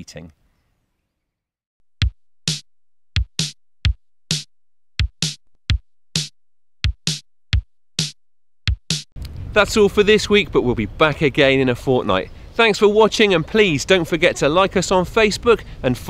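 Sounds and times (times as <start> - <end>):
drum machine beat: 1.9 - 9.2.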